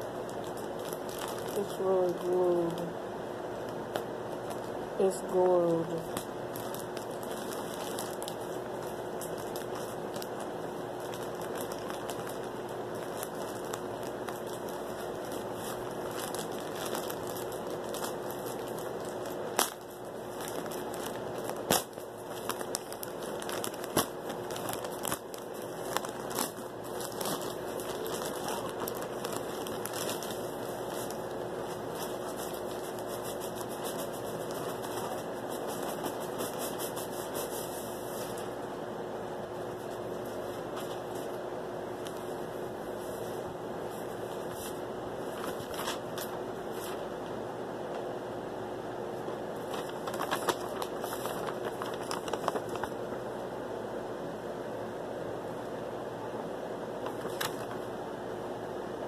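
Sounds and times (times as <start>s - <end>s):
plastic bag crinkling: 0.2s - 2.8s, 6.0s - 38.5s, 44.2s - 47.1s, 49.5s - 53.2s, 57.0s - 57.9s.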